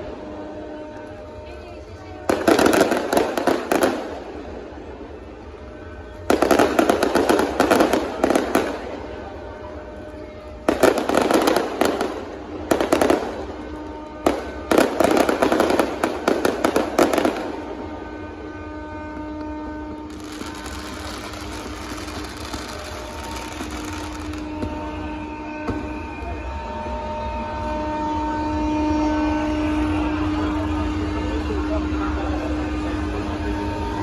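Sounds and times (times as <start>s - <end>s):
low ship's horn: 0.0s - 34.0s
fireworks bangs and crackle: 2.2s - 26.7s.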